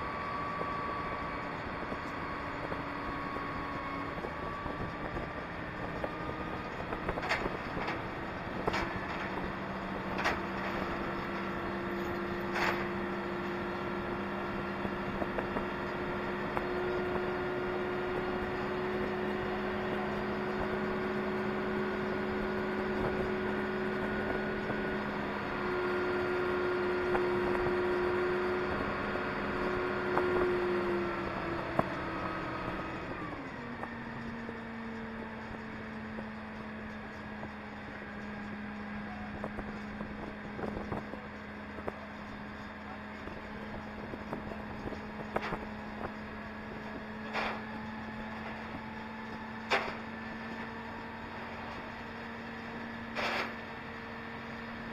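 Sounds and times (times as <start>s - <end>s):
crane engine and hydraulics running: 0.0s - 54.9s.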